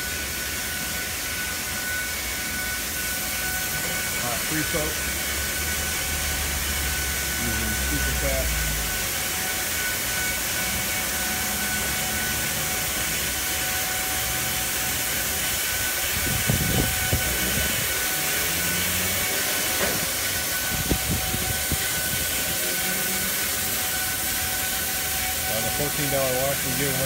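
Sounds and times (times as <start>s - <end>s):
car wash spray hissing: 0.0s - 27.0s
faint steady whine: 0.0s - 27.0s.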